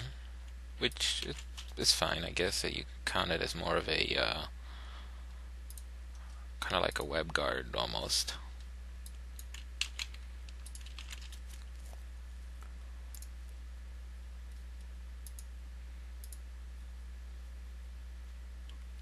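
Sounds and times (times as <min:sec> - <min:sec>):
low electrical hum: 0:00.0 - 0:19.0
computer mouse clicks: 0:09.0 - 0:11.4, 0:13.1 - 0:13.3, 0:15.2 - 0:15.5, 0:16.2 - 0:16.4.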